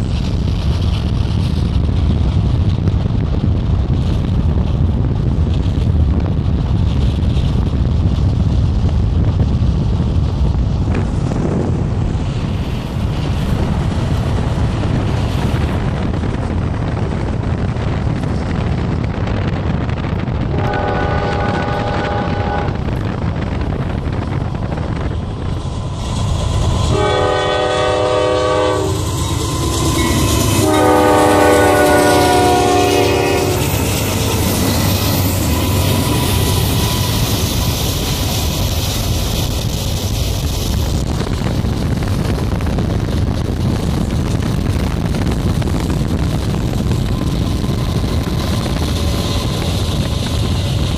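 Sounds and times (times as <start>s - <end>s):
car road and wind noise: 0.0s - 50.9s
freight train rumbling past: 0.0s - 50.9s
locomotive air horn blasts: 20.5s - 22.9s, 26.8s - 33.8s.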